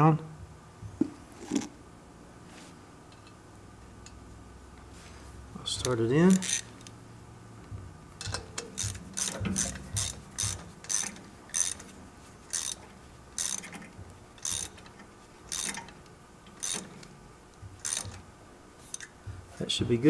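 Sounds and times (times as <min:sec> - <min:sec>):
hand ratchet clicking: 0:05.8 - 0:06.9, 0:08.2 - 0:11.9, 0:12.5 - 0:17.0, 0:17.8 - 0:18.2.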